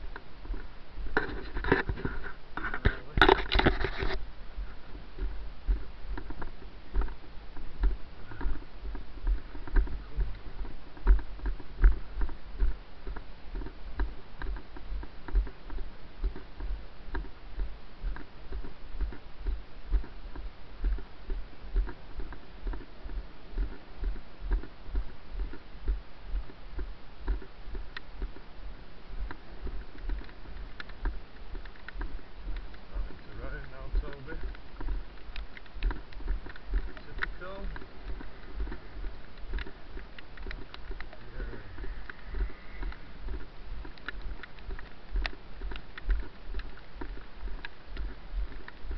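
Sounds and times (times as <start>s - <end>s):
faint rustling: 0.0s - 48.9s
footsteps on wet grass: 0.0s - 48.9s.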